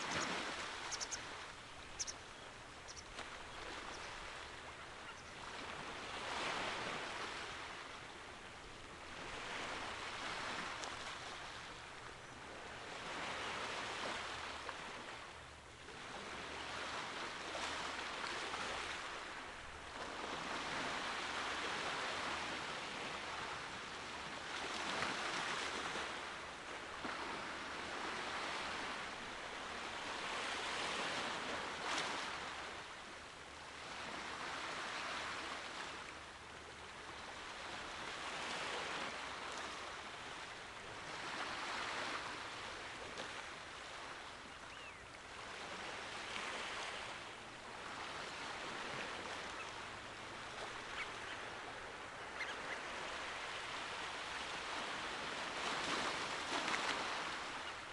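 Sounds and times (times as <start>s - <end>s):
small sea waves breaking: 0.0s - 57.9s.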